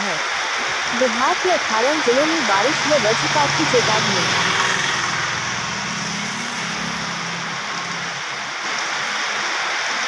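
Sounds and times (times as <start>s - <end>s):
steady rain: 0.0s - 10.0s
low hum: 1.5s - 8.6s.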